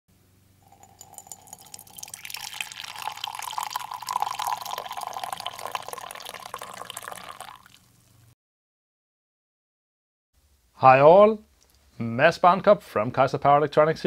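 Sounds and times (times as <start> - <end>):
coffee pouring into ceramic mug: 0.6 - 8.0.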